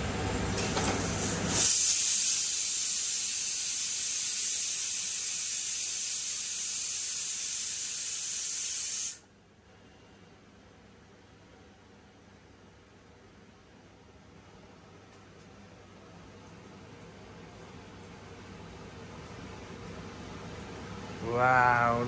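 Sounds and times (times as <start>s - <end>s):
high-pitched hiss: 1.6s - 9.2s.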